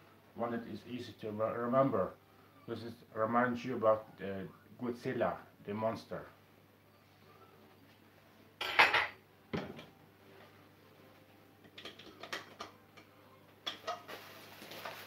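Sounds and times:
pan and utensils clattering: 0:08.6 - 0:09.9, 0:13.6 - 0:15.0.

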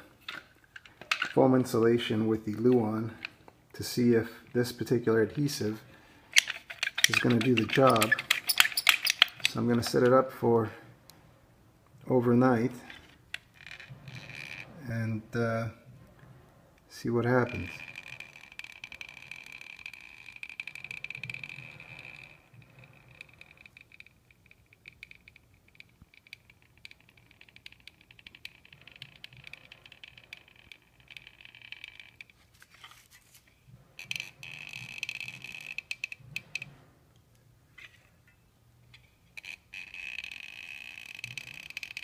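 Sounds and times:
handling noise: 0:00.0 - 0:10.3
caulking gun clicks and rattles: 0:00.2 - 0:01.8, 0:06.2 - 0:10.2, 0:12.8 - 0:14.8, 0:17.4 - 0:36.7, 0:38.9 - 0:42.0.

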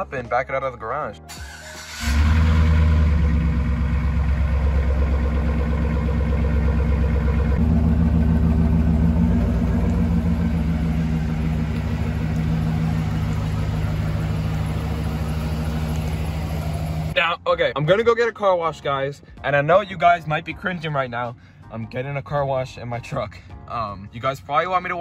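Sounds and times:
truck engine idling: 0:01.6 - 0:17.2.

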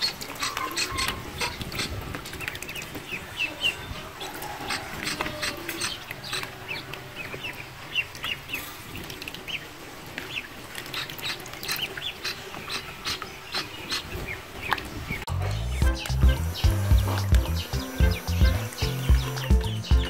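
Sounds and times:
ducklings peeping: 0:00.0 - 0:20.0
music with low beat: 0:15.3 - 0:20.0.

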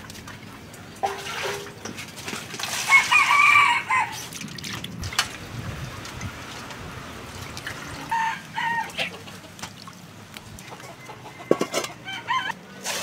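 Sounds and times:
chickens clucking: 0:07.7 - 0:09.8, 0:10.4 - 0:12.6.

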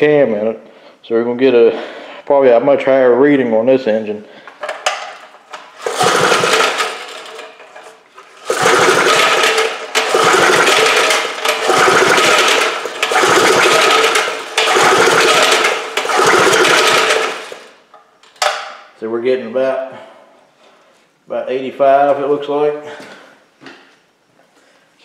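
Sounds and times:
engine cranked by recoil starter: 0:04.6 - 0:17.8.

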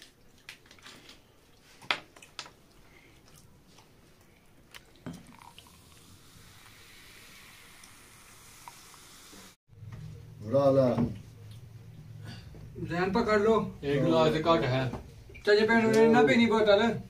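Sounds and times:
soda fizzing into a glass: 0:05.0 - 0:09.6.

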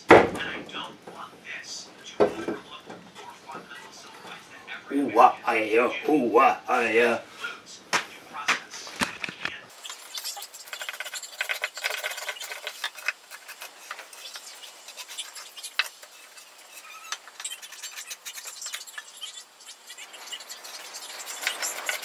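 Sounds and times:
hand tool scraping wood: 0:10.6 - 0:22.0.

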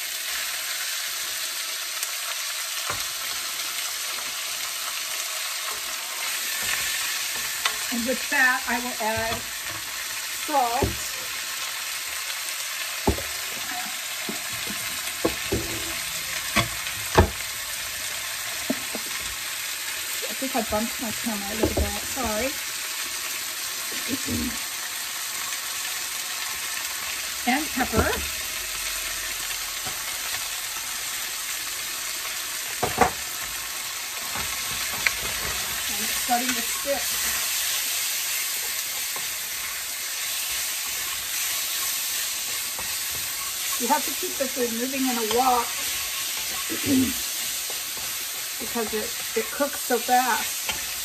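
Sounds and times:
food sizzling in a wok: 0:00.0 - 0:51.0
wooden spatula knocking on wok: 0:13.0 - 0:13.4, 0:16.6 - 0:17.4.

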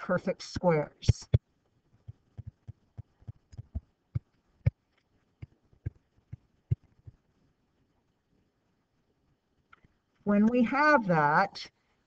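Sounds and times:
stylus tapping on a screen: 0:00.6 - 0:07.2.

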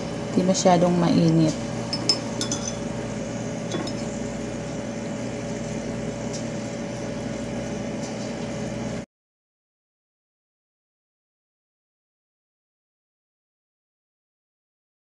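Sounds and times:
kitchen appliance motor hum: 0:00.0 - 0:09.0.

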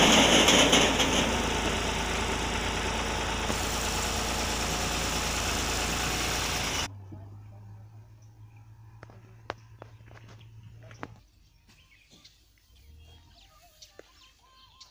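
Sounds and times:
tractor engine running: 0:00.0 - 0:08.1.

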